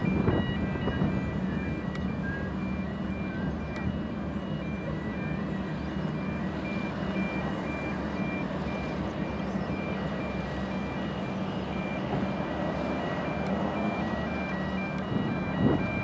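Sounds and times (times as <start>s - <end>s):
ship diesel engines rumbling: 0.0s - 16.0s.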